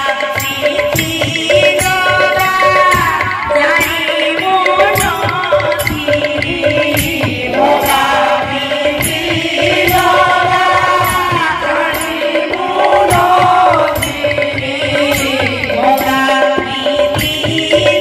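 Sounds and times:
chanted devotional singing: 0.0s - 18.0s
percussion strokes: 0.0s - 18.0s.

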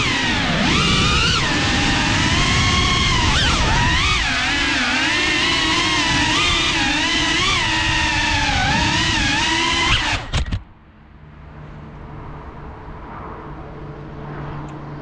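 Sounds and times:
drone motors whining: 0.0s - 10.7s.

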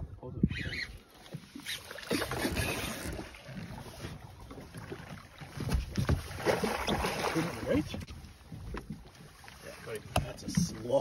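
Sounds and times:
wind buffeting the microphone: 0.0s - 1.0s
water splashing: 1.0s - 11.0s.

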